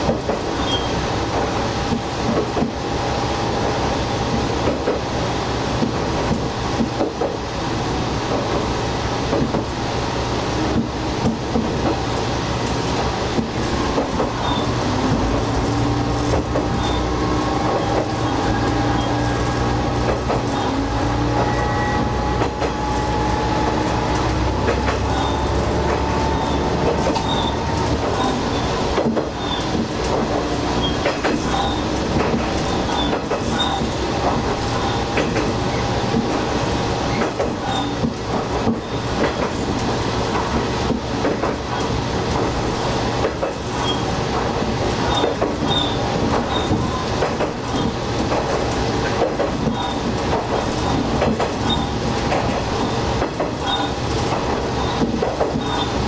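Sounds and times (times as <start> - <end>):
wheels clacking over rail joints: 0.0 - 7.5, 10.6 - 56.0
train wheel rumble: 0.0 - 56.0
diesel engine drone: 7.6 - 39.1.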